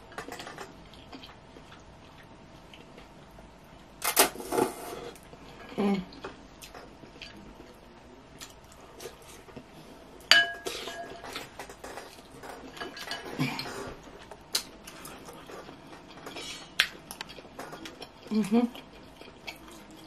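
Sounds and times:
glass ringing: 10.3s - 11.1s
utensils clinking on glass bowl: 10.3s - 11.5s.

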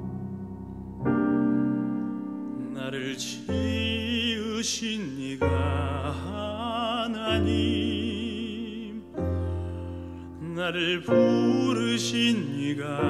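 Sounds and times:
low accompaniment notes: 0.0s - 2.8s
man singing operatically: 2.6s - 9.2s, 10.4s - 13.0s.

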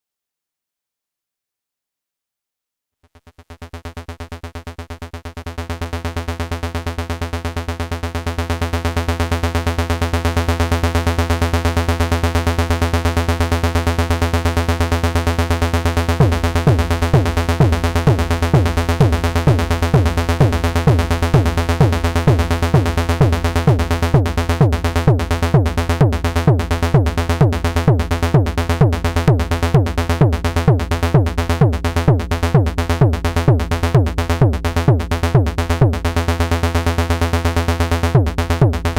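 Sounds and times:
synthesizer bass line: 14.7s - 38.9s
synthesized kick drum: 16.0s - 38.9s.

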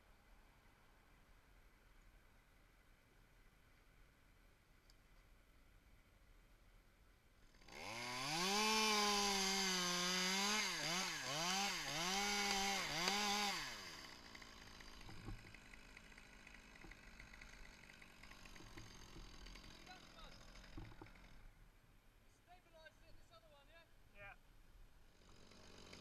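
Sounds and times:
chainsaw cutting wood: 7.4s - 21.6s, 25.1s - 26.0s.

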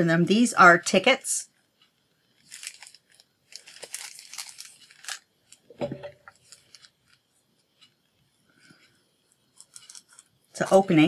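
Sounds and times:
plastic bag crinkling: 2.4s - 7.2s, 9.6s - 10.8s.

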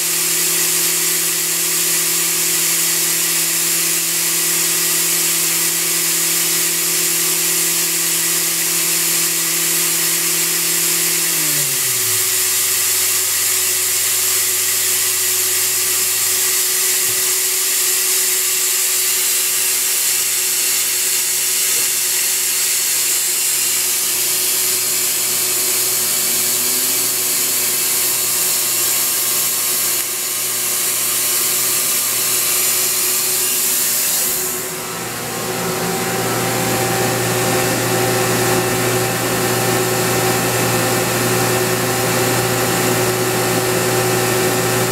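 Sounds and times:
loud steady machine hiss: 0.0s - 44.9s
machine spindle tones: 23.9s - 30.4s.

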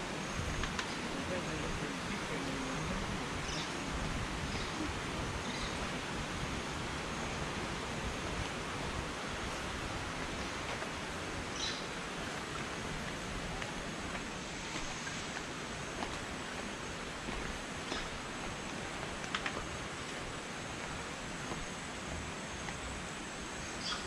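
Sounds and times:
steady rushing ambience: 0.0s - 23.8s
faint bird chirps: 23.7s - 24.0s.

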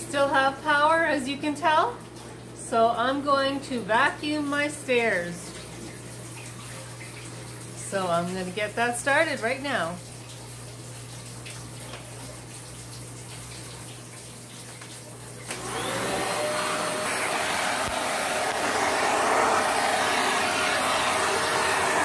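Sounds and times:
vacuum cleaner motor running: 15.4s - 22.0s
vacuum cleaner switch click: 15.5s - 19.2s.

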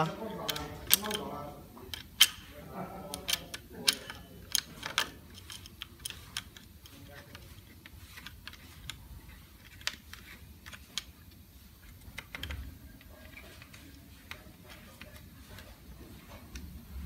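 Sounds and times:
bolts and washers clicking on metal: 0.0s - 7.4s.

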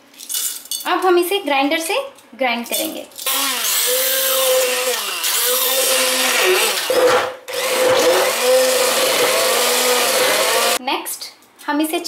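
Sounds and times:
immersion blender blending ice: 3.3s - 10.8s.

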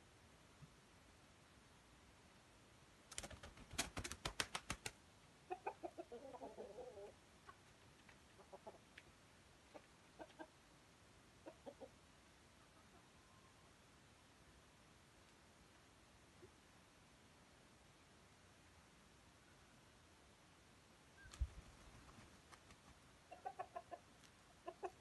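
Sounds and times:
rooster clucking: 5.5s - 7.2s, 8.4s - 8.8s, 9.7s - 10.6s, 23.3s - 25.0s.

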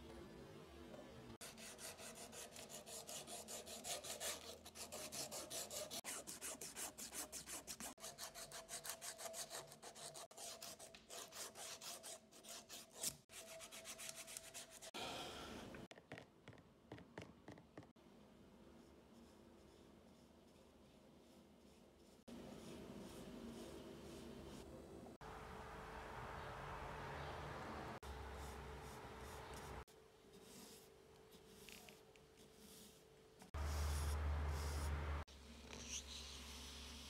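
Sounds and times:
sandpaper rubbing on wood: 1.4s - 14.9s.

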